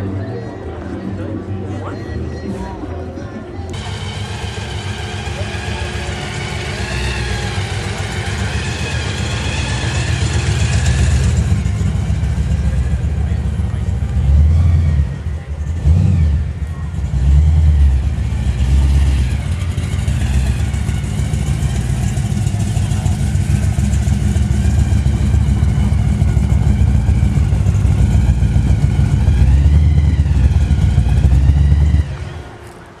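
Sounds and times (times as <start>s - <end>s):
car engine running: 3.7s - 32.7s.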